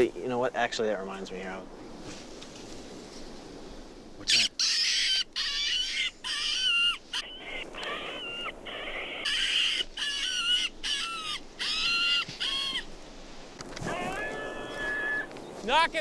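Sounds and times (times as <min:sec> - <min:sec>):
electronic squealing animal cries: 0:04.3 - 0:12.9.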